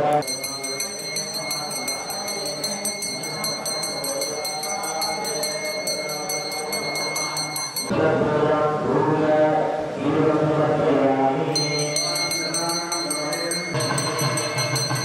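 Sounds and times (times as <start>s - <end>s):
hand bell ringing rapidly: 0.2s - 7.9s, 11.6s - 15.0s.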